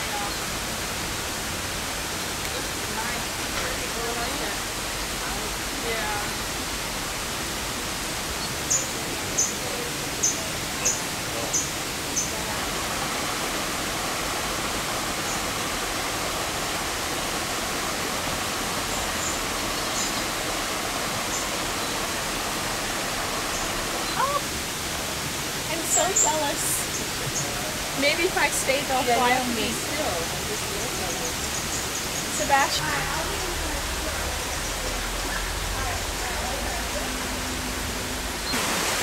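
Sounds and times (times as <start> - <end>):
waterfall rushing: 0.0 - 39.0.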